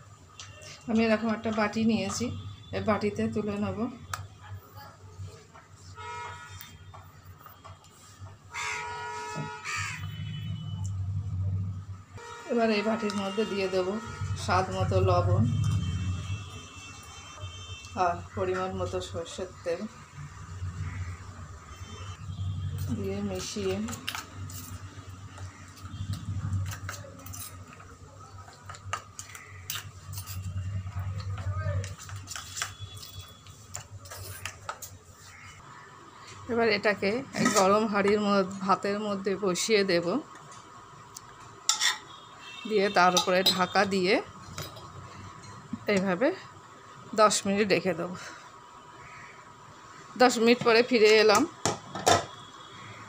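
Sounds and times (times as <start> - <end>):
crow cawing: 8.5 - 10.1, 20.7 - 21.4, 29.2 - 29.8, 35.3 - 36.0, 49.0 - 49.5
metal spoon scraping a steel bowl: 23.6 - 27.8, 28.9 - 34.9, 41.7 - 42.2, 43.1 - 43.8.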